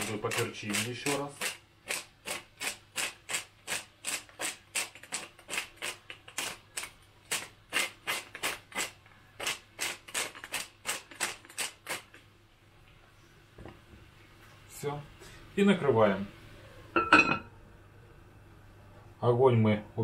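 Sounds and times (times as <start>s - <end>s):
pepper mill grinding peppercorns: 0.0s - 12.2s.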